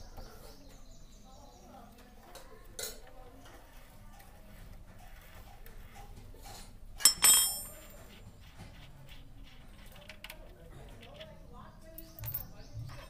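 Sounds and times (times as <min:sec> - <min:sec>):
spanner clinking on metal: 0:07.0 - 0:07.8.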